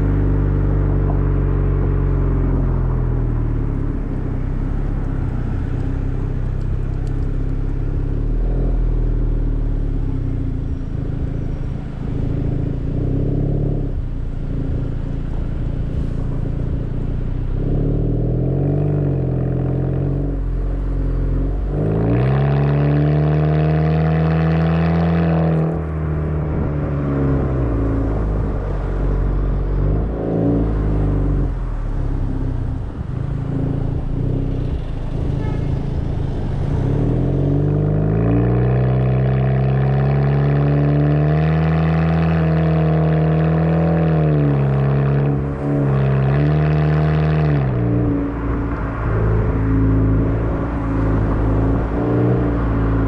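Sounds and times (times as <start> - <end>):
car exhaust drone: 0.0 - 53.0
road noise: 0.0 - 53.0.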